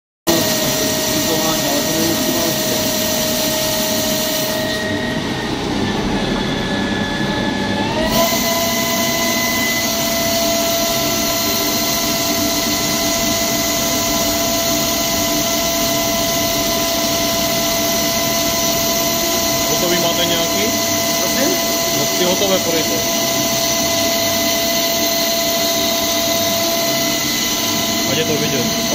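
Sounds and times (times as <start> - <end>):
coolant spray hiss: 0.3 - 4.6
lathe spindle whine: 0.3 - 28.9.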